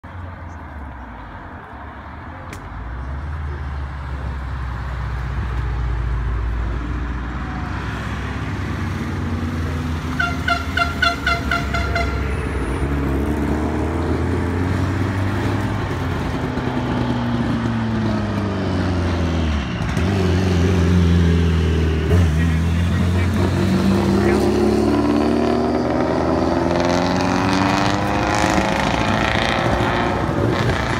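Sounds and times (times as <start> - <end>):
car horn short toots: 10.2 - 12.3
car engines at low revs: 12.5 - 30.9.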